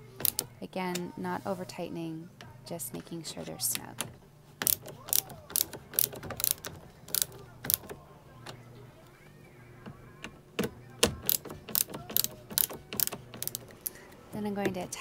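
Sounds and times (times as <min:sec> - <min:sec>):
ratcheting screwdriver clicking: 0:00.2 - 0:00.5, 0:04.6 - 0:08.0, 0:11.2 - 0:14.0.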